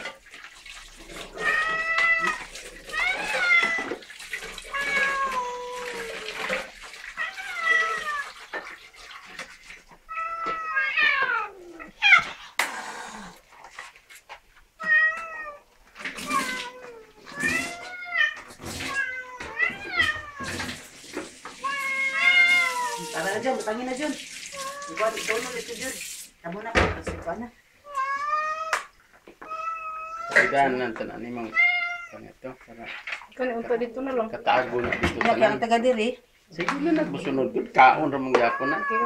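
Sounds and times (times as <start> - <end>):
cats meowing: 1.0 - 13.4, 14.8 - 23.8, 24.4 - 25.6, 27.8 - 32.4, 38.0 - 39.0.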